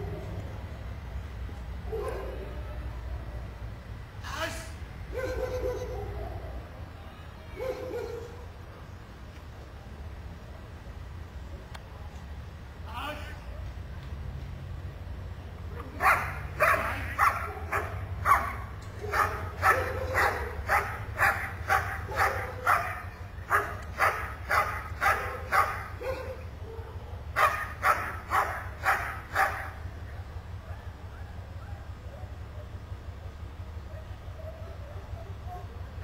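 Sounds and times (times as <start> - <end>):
large dog barking: 1.9 - 2.5, 5.1 - 6.4, 7.6 - 8.4, 15.8 - 32.8.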